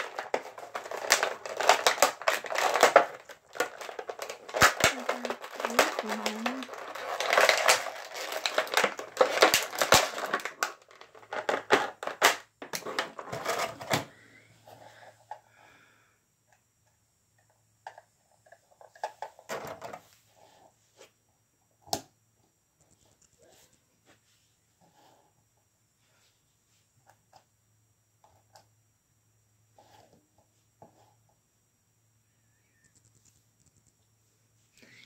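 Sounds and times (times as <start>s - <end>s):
plastic packaging crinkling: 0.0s - 14.0s.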